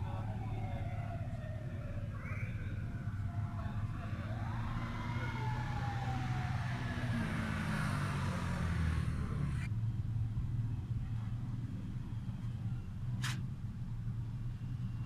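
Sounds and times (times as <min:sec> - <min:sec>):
traffic rumble: 0:00.0 - 0:15.0.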